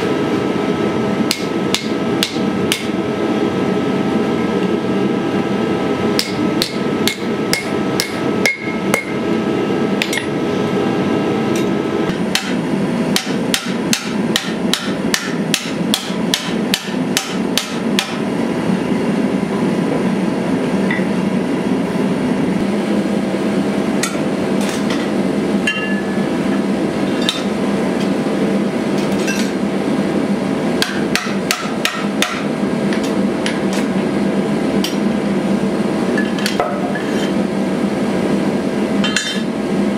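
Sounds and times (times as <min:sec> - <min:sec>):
gas forge roaring: 0:00.0 - 0:39.9
hammer striking steel on anvil: 0:01.3 - 0:03.0, 0:06.2 - 0:09.2, 0:10.0 - 0:10.4, 0:11.5 - 0:18.2, 0:24.0 - 0:26.2, 0:27.2 - 0:27.5, 0:30.8 - 0:33.8, 0:39.0 - 0:39.5.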